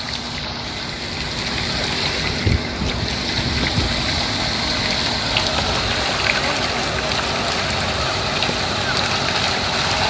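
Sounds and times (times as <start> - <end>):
churned water rushing: 0.0 - 10.0
wind buffeting microphone: 1.7 - 6.2.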